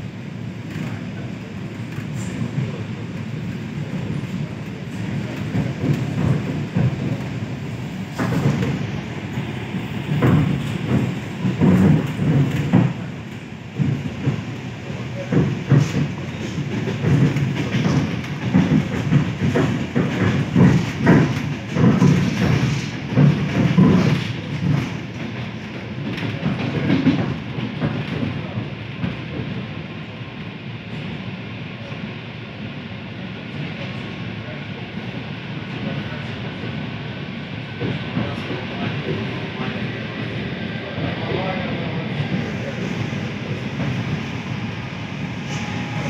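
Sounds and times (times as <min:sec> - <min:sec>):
train rumble inside carriage: 0:00.0 - 0:46.0
wheels clacking on track: 0:03.9 - 0:28.4.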